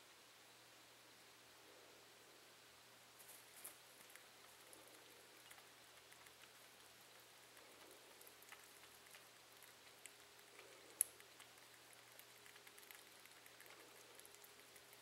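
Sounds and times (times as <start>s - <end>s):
rabbit lapping wet clicks: 3.3s - 15.0s.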